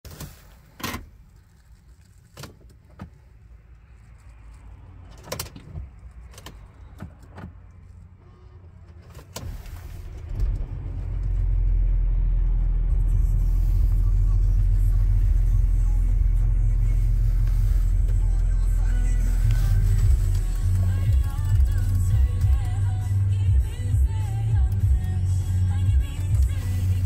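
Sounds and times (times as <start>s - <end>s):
clicks and knocks in car cabin: 2.3s - 3.3s, 5.1s - 7.9s
diesel engine starting and idling: 2.7s - 27.0s.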